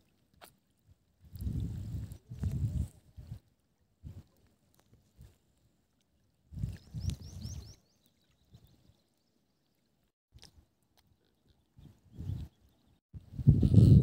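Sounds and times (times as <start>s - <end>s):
wind gusts buffeting microphone: 1.4s - 3.4s, 13.2s - 14.0s.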